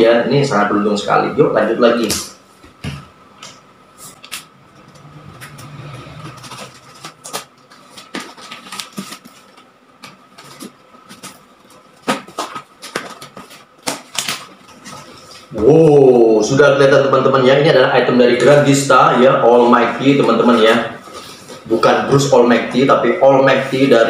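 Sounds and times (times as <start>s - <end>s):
cardboard rustles and taps: 6.4s - 15.0s
box flaps cracking open: 12.0s - 14.8s.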